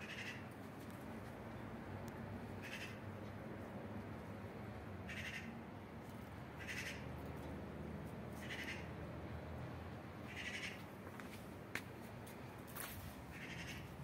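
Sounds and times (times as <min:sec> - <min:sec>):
high-pitched animal calls: 0:06.6 - 0:07.1, 0:10.3 - 0:10.8, 0:13.3 - 0:14.0.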